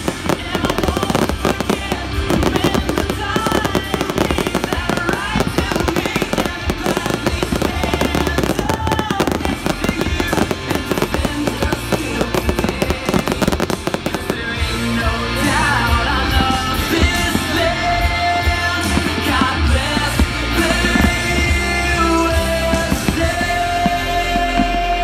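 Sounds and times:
fireworks bursting and crackling: 0.0s - 25.0s
loud music: 0.0s - 25.0s.

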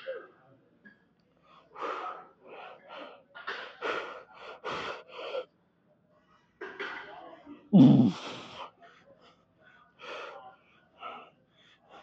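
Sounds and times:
man breathing hard: 1.6s - 5.5s, 7.8s - 12.0s.

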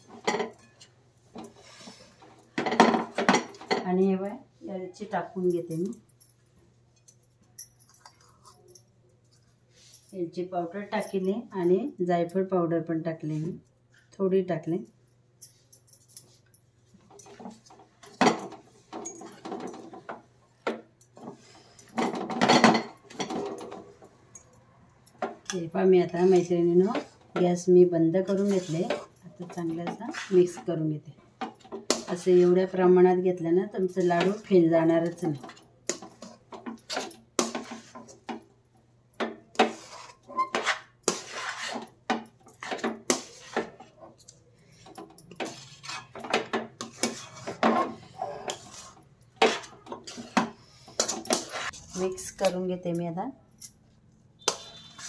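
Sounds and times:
wooden spatula scraping steel pan: 26.0s - 27.4s, 28.2s - 30.7s, 35.9s - 38.3s, 39.6s - 42.0s, 42.6s - 44.0s, 45.4s - 52.4s, 54.5s - 55.0s.

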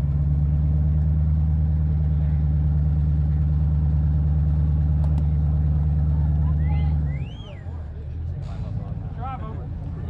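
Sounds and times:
engine throbbing at low revs: 0.0s - 7.4s.

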